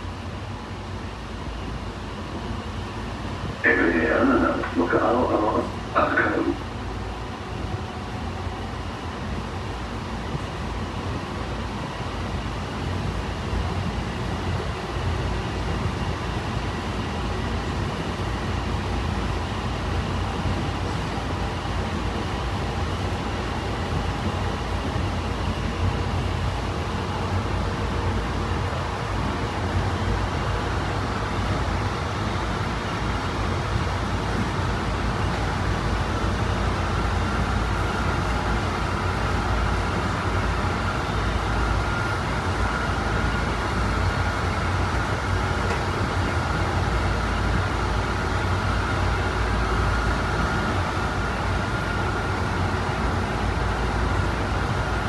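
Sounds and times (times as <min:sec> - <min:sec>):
train rumbling and rolling: 0:00.0 - 0:55.0
faint high whine: 0:03.6 - 0:06.8.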